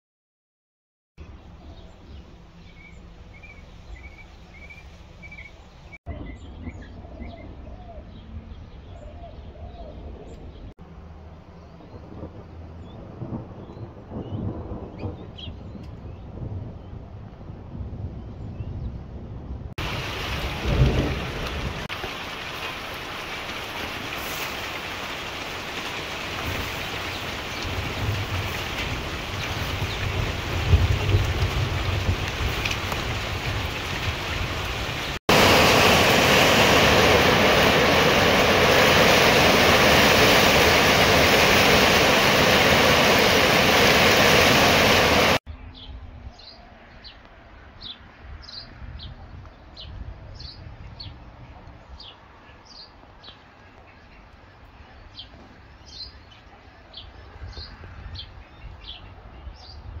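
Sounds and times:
small birds chirping: 0:01.6 - 0:10.7
wind gusting on microphone: 0:11.6 - 0:22.4, 0:26.0 - 0:52.3, 0:56.9 - 1:00.0
loud rush of storm noise: 0:11.9 - 0:45.4.

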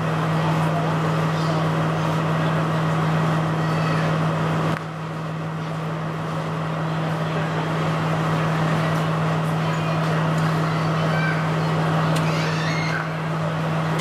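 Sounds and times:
diesel train droning: 0:00.0 - 0:14.0
murmur of people: 0:00.0 - 0:14.0.

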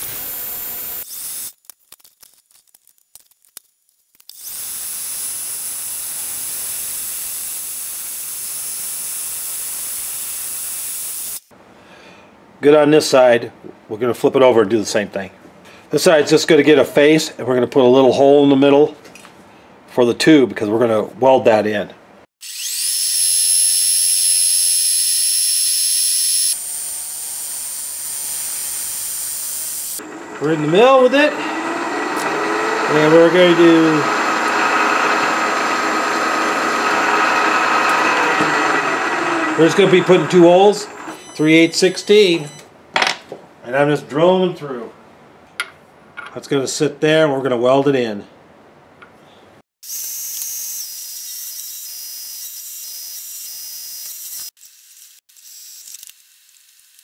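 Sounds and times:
lathe tool cutting steel: 0:22.4 - 0:42.5
metal lathe whining: 0:22.5 - 0:42.5.

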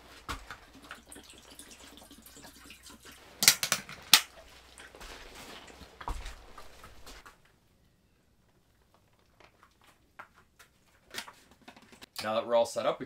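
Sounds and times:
water pouring into metal bowl: 0:00.7 - 0:03.3.

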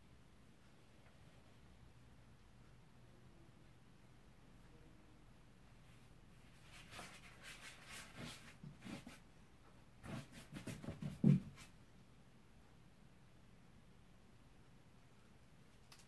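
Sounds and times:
paintbrush strokes on cardboard: 0:05.8 - 0:09.3, 0:10.0 - 0:11.8.

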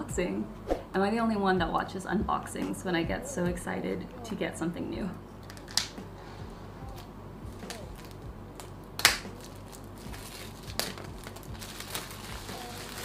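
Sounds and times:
plastic shrink-wrap tearing and crinkling: 0:06.9 - 0:13.0.

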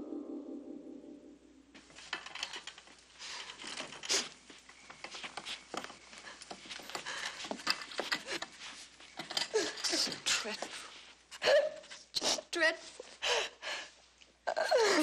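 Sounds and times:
people rustling and shuffling: 0:01.7 - 0:15.0
footsteps in a room: 0:03.6 - 0:09.2.

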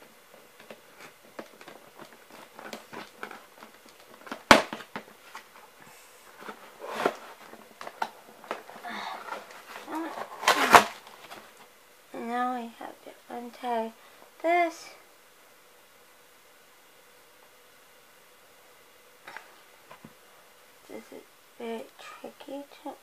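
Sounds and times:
packaging clicks and rustles: 0:00.6 - 0:05.6, 0:06.3 - 0:11.6.

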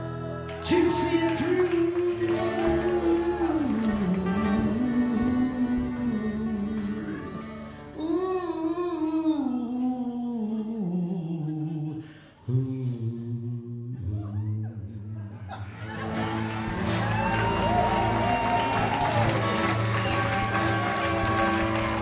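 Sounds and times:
acoustic guitars: 0:00.0 - 0:09.5, 0:15.6 - 0:22.0
upright bass: 0:00.0 - 0:10.0, 0:15.0 - 0:22.0
man singing with vibrato: 0:00.0 - 0:15.6.

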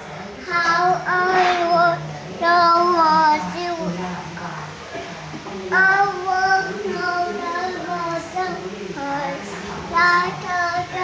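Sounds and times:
toddler singing: 0:00.5 - 0:03.9, 0:05.7 - 0:09.4, 0:10.0 - 0:11.0.

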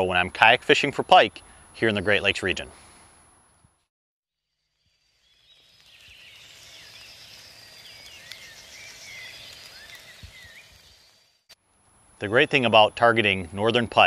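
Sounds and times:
background hiss: 0:00.0 - 0:03.7, 0:04.6 - 0:14.0
small birds chirping: 0:04.8 - 0:11.5.

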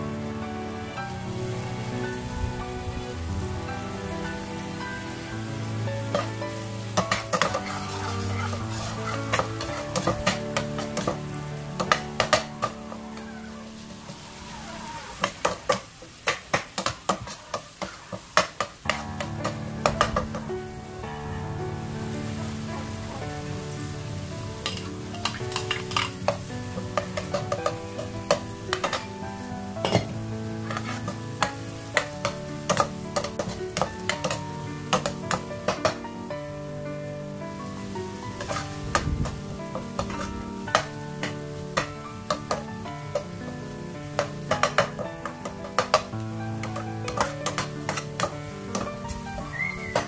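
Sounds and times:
soft background music: 0:00.0 - 0:15.1, 0:18.8 - 0:50.0
food sizzling in a pan: 0:00.0 - 0:50.0
spoon scraping pot: 0:07.0 - 0:11.2, 0:29.9 - 0:31.2
spoon stirring in pot: 0:07.0 - 0:11.2, 0:24.6 - 0:29.1, 0:29.9 - 0:36.0
utensil scraping pan: 0:07.0 - 0:11.2, 0:24.6 - 0:29.1, 0:29.8 - 0:36.0.

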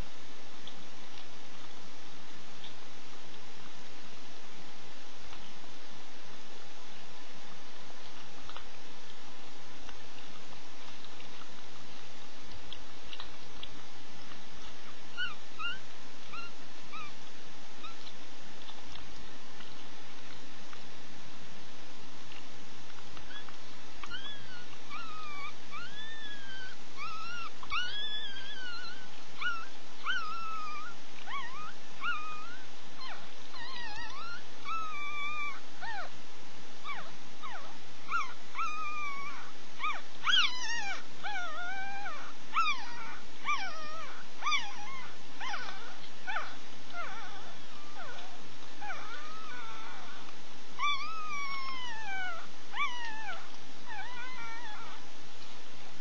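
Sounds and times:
puppies squeaking and whimpering: 0:14.8 - 0:17.2, 0:23.3 - 0:36.1, 0:36.8 - 0:50.2, 0:50.8 - 0:55.0.

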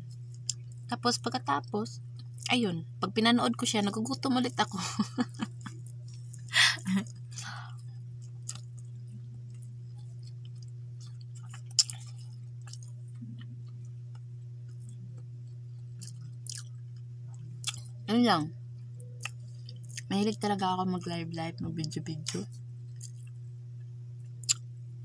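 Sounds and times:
low hum: 0:00.0 - 0:25.0
faint chewing: 0:07.8 - 0:17.9, 0:19.2 - 0:20.1, 0:22.9 - 0:23.4.

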